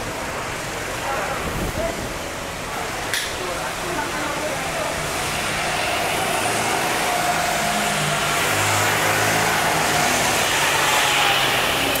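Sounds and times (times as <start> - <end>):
kart engine driving past: 5.0 - 12.0.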